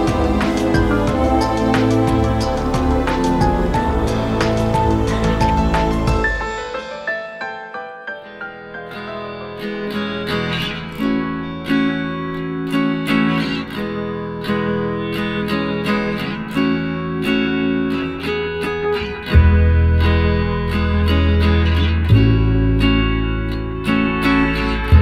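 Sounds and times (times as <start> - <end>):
deep bass line: 0.0 - 6.5, 21.9 - 23.8
acoustic guitar plucked and strummed: 0.0 - 7.0, 8.2 - 25.0.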